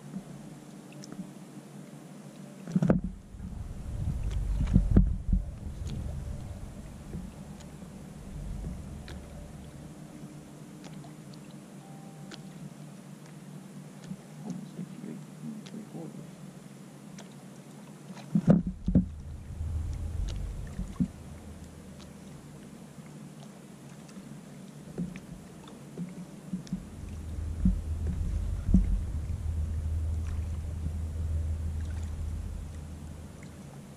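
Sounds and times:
knocks and clicks on kayak hull: 2.7s - 3.2s, 4.2s - 6.0s, 18.4s - 19.2s, 24.9s - 25.4s
low rumble: 2.9s - 11.1s, 18.6s - 22.8s, 26.5s - 33.9s
loud thumps on kayak: 18.4s - 19.2s.

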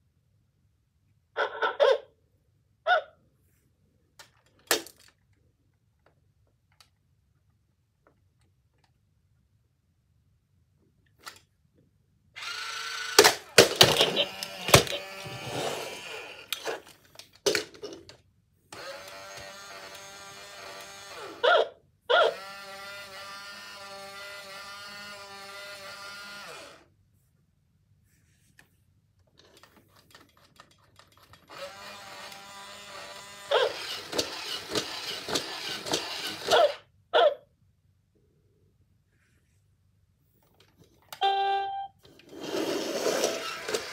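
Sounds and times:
toy electronic sounds: 12.4s - 16.8s, 31.5s - 37.3s, 41.2s - 43.9s
toy motors whirring and clicking: 12.4s - 18.0s, 18.7s - 21.5s, 22.1s - 26.9s, 29.4s - 36.8s, 42.1s - 43.9s.

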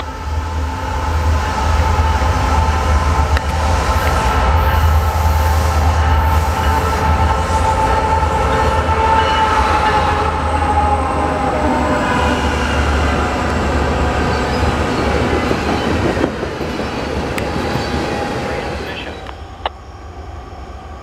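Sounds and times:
train horn: 0.0s - 13.6s
train cars rolling past: 0.0s - 19.8s
locomotive engines rumbling: 0.0s - 21.0s.

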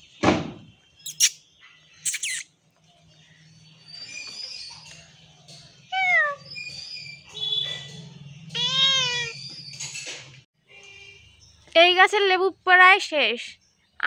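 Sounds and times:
cat meowing: 8.5s - 9.4s.

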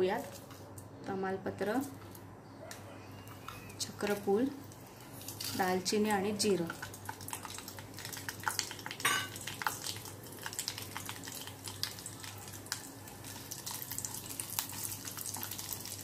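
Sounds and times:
spices sizzling in hot oil: 3.8s - 16.0s.

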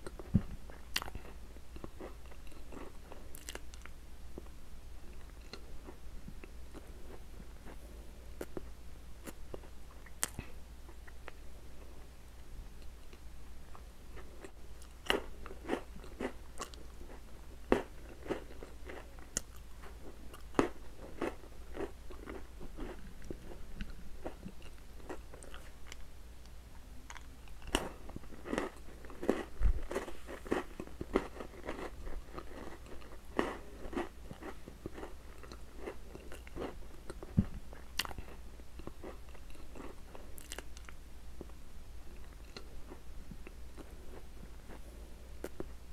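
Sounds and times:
person chewing and crunching: 0.0s - 3.9s, 13.0s - 26.0s, 27.1s - 41.5s, 42.2s - 45.7s.

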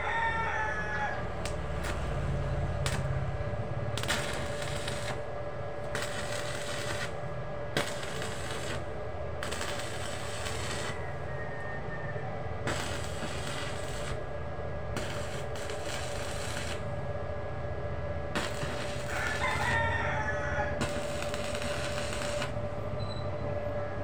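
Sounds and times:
welding arc crackling: 1.2s - 11.2s, 12.6s - 17.1s, 18.3s - 19.9s, 20.7s - 22.8s.

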